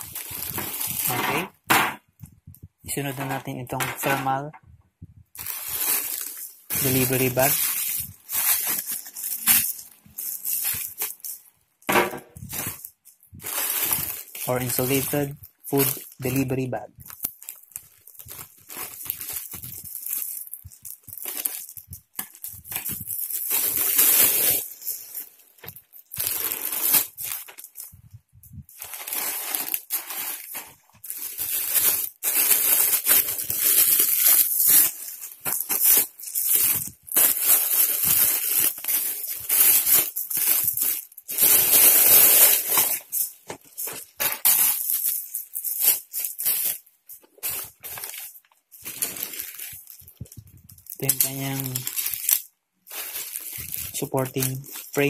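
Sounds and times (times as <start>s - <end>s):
plastic packaging crinkling: 0.0s - 1.6s, 5.4s - 11.6s, 12.4s - 55.0s
scissors cutting plastic bag: 5.4s - 11.2s, 50.9s - 52.4s, 53.0s - 55.0s.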